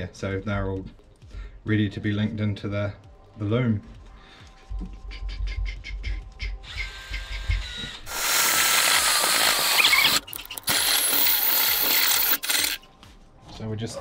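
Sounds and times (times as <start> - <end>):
drill cutting metal screech: 6.7 - 12.8.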